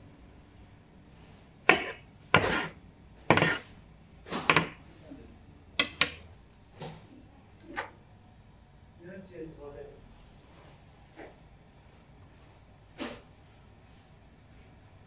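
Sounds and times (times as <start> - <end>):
knife chopping on wooden board: 1.7 - 3.7, 4.3 - 4.8, 5.8 - 6.2.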